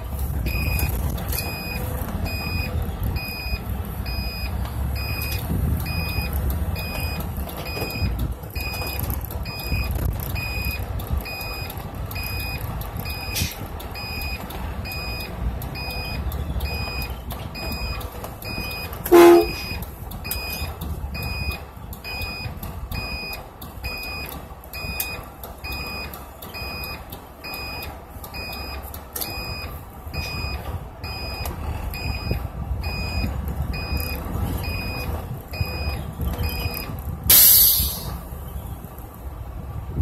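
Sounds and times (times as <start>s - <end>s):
bus engine and road rumble: 0.0s - 40.0s
two-tone warning beeps: 0.4s - 38.1s
loud pitched blip: 37.3s - 38.1s
hiss of air: 37.3s - 38.2s.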